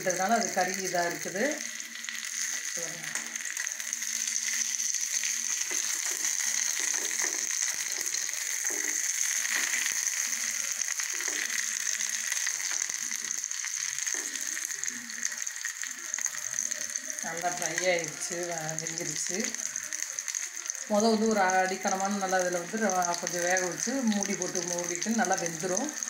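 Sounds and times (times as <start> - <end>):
oil sizzling and crackling: 0.0 - 26.0.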